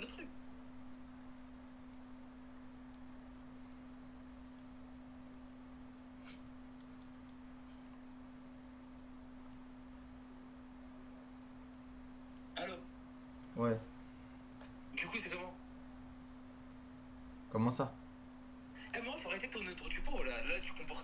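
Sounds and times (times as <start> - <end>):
steady low electrical hum: 0.0 - 21.0.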